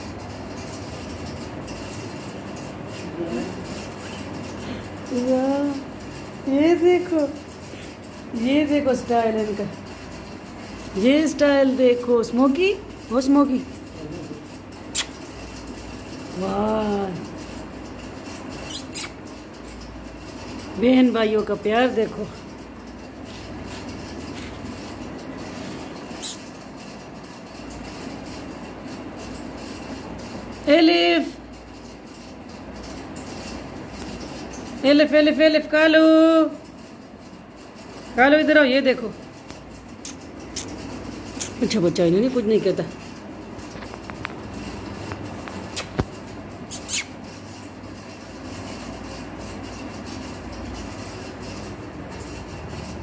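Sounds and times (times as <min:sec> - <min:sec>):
sharp click: 0:45.5 - 0:46.1.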